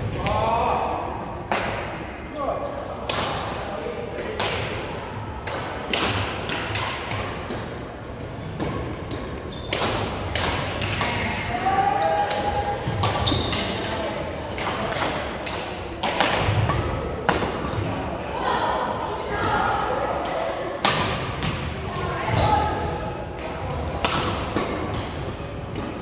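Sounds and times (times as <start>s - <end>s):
rackets hitting shuttlecock: 5.4s - 11.6s, 12.3s - 17.9s, 23.6s - 26.0s.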